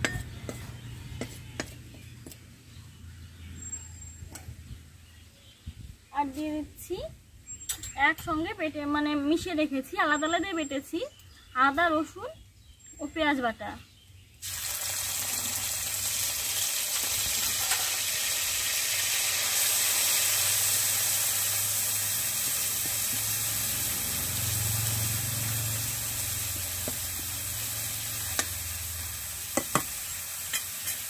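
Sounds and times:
paste sizzling in hot oil: 0:14.4 - 0:31.0.

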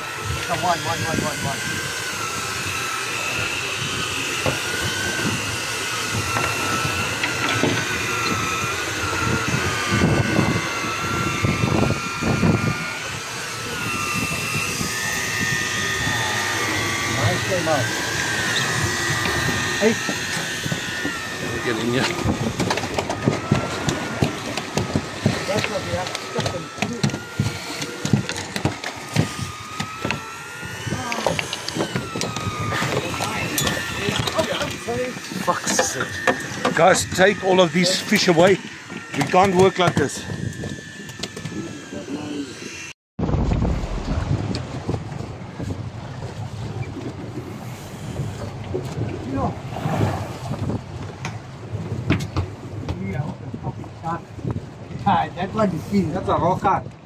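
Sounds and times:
steady thin whine: 0:00.0 - 0:56.8
boat engine running: 0:00.0 - 0:57.0
low rumbles: 0:43.2 - 0:55.6.

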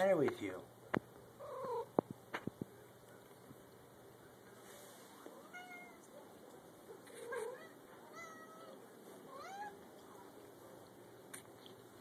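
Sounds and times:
cat meowing softly: 0:05.4 - 0:06.1, 0:07.2 - 0:09.8.

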